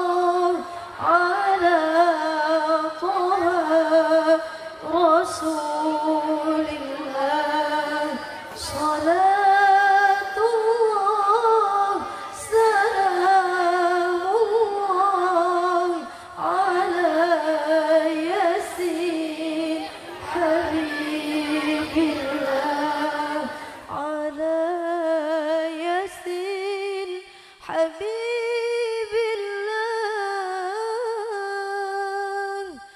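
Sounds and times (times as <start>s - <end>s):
woman reciting melodically: 0.0s - 32.9s
woman breathing: 16.0s - 16.4s, 27.3s - 27.6s.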